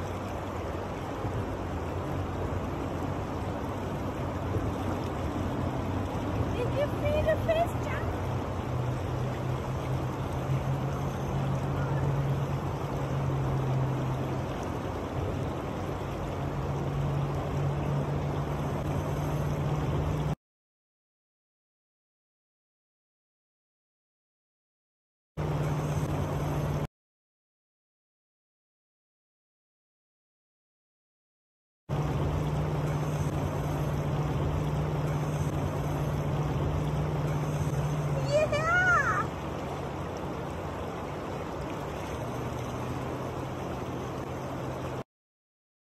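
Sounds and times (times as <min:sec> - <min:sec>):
river water rushing over riffle: 0:00.0 - 0:20.4, 0:25.4 - 0:26.9, 0:31.9 - 0:45.0
steady low hum: 0:31.9 - 0:45.0.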